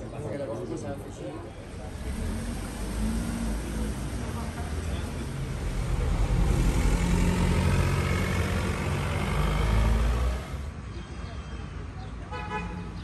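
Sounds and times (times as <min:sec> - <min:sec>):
car driving past: 0:01.6 - 0:10.7.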